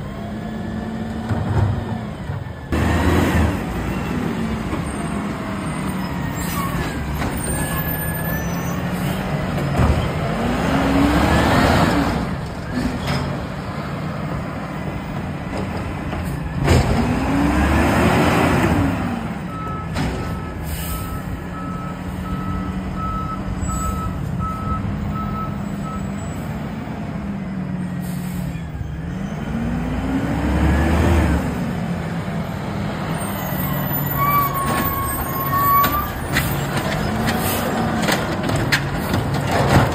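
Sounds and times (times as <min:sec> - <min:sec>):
garbage truck engine revving: 0:02.8 - 0:07.6, 0:08.8 - 0:20.9, 0:29.0 - 0:33.2
reversing alarm beeping: 0:19.5 - 0:26.2.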